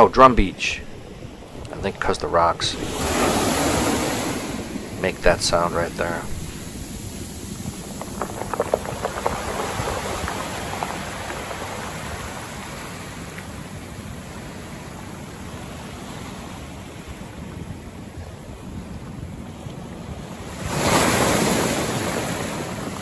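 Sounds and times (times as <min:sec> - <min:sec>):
surf wash hissing: 0:00.0 - 0:17.4, 0:20.4 - 0:23.0
stones clacking in backwash: 0:04.8 - 0:13.5.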